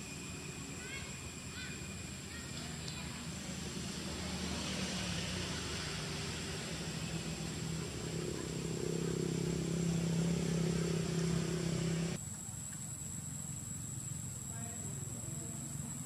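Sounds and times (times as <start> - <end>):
low engine hum: 0.0 - 12.5.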